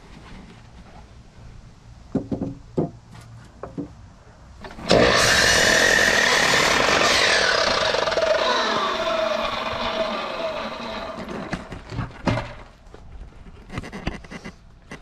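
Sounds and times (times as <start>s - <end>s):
wooden boards knocking: 2.1s - 3.0s, 3.6s - 3.9s
electric miter saw cutting: 4.6s - 11.8s.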